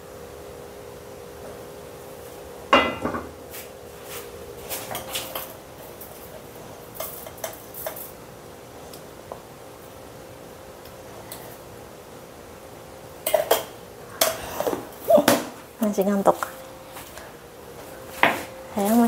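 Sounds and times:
frying pan clanking on grate: 2.8s - 3.4s
kitchen things clinking: 6.9s - 8.2s.

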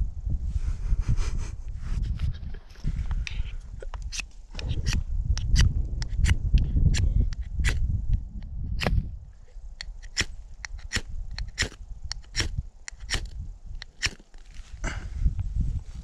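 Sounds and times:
knife scraping ferro rod: 9.8s - 13.3s, 13.9s - 14.3s.

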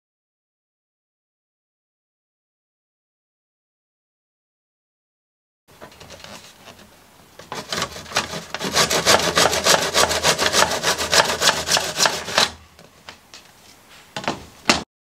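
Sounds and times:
handsaw cutting wood: 7.4s - 12.6s.

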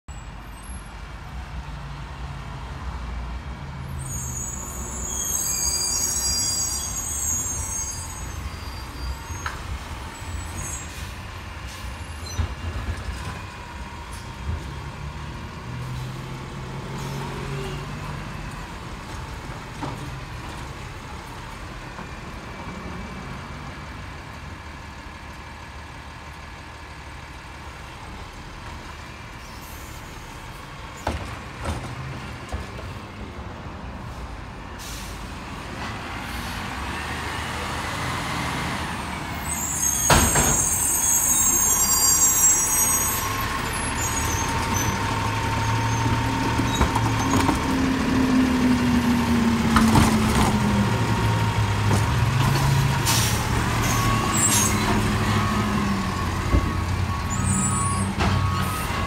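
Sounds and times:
diesel engine rumbling and revving: 0.3s - 59.0s
air brakes hissing: 4.0s - 12.4s, 29.4s - 30.3s, 34.8s - 35.4s, 39.2s - 45.0s, 52.8s - 56.0s, 57.2s - 59.0s.

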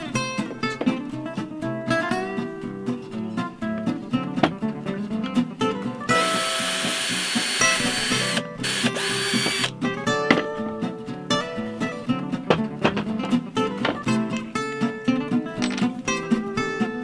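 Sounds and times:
acoustic guitar music: 0.0s - 17.0s
cordless drill into wood: 6.1s - 9.7s.

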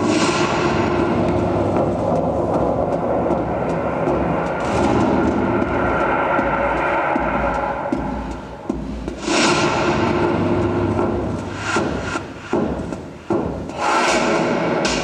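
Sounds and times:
droning atmospheric music: 0.0s - 15.0s.

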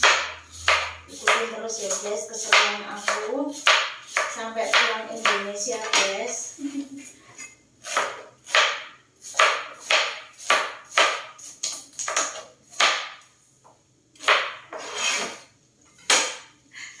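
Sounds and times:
knife chopping on cutting board: 0.0s - 6.1s, 7.8s - 13.2s, 14.2s - 15.4s.

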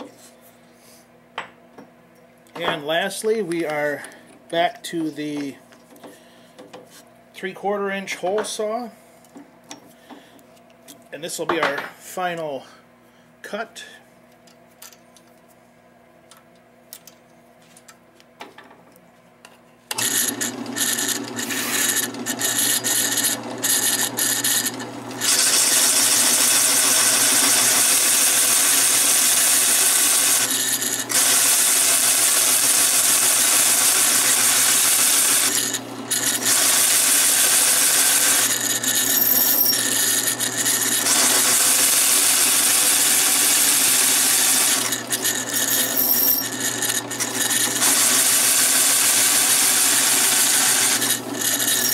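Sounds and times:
drill press motor whine: 19.9s - 51.9s
hole saw rasping through wood: 20.0s - 51.9s.

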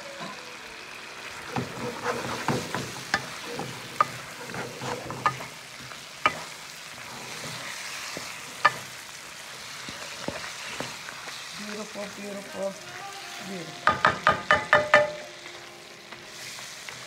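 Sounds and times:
food sizzling in a pan: 0.0s - 17.0s
wooden spatula stirring: 1.5s - 9.0s
spatula knocking against pan: 13.8s - 15.2s.

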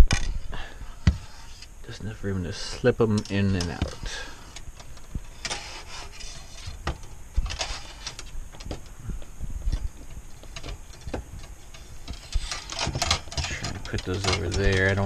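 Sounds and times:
tools rattling on metal wire shelf: 10.5s - 15.0s.

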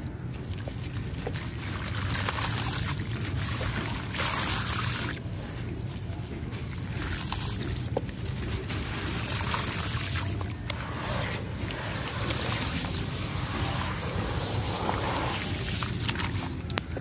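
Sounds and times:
hands sloshing in water: 0.0s - 17.0s
small gritty clicks: 16.6s - 17.0s.

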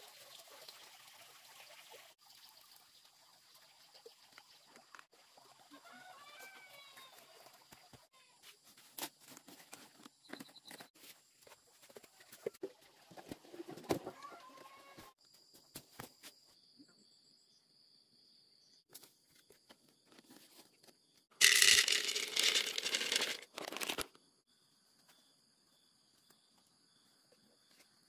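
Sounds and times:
grains pouring into bamboo tube: 21.4s - 24.2s
rustling and handling clicks: 21.4s - 24.2s.

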